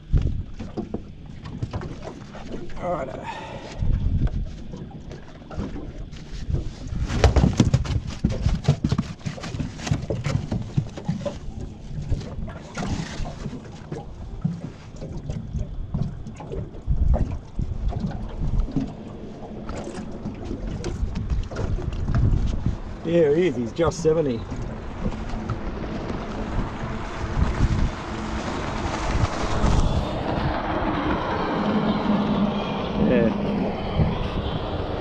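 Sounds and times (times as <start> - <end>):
water slapping around boat: 0.0 - 35.0
wind buffeting microphone: 0.0 - 35.0
knocks and thumps on deck: 7.1 - 11.0.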